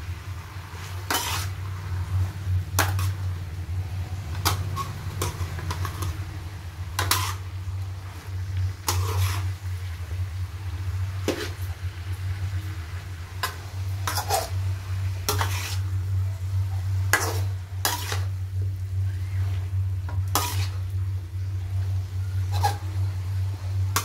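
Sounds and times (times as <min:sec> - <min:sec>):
light sizzle: 0:00.0 - 0:24.0
steady low hum: 0:00.0 - 0:24.0
metal spatula scraping a wok: 0:00.6 - 0:03.4, 0:04.0 - 0:09.7, 0:11.2 - 0:11.7, 0:13.4 - 0:16.1, 0:17.0 - 0:18.4, 0:19.2 - 0:21.0, 0:22.2 - 0:23.2.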